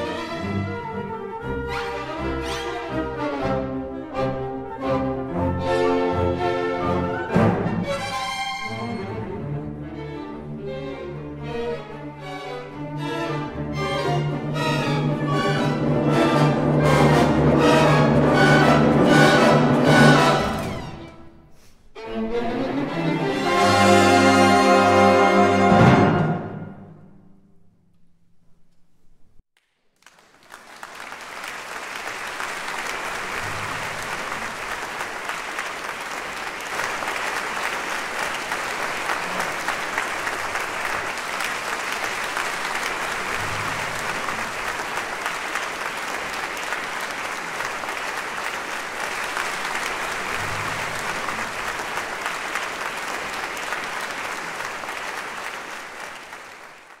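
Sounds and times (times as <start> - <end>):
orchestra chord: 23.3 - 27.1
audience applause: 30.0 - 57.0.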